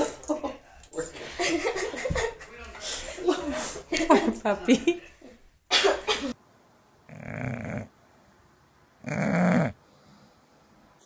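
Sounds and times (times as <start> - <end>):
dog snoring: 7.1 - 7.9, 9.0 - 9.8.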